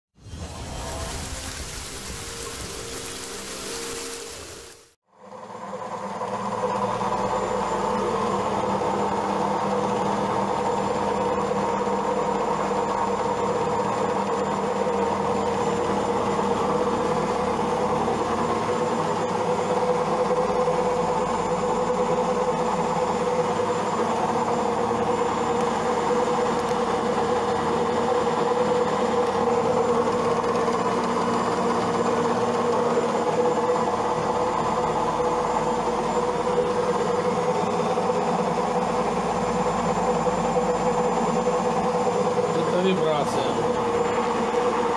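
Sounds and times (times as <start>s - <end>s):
washing machine spinning: 5.2s - 44.9s.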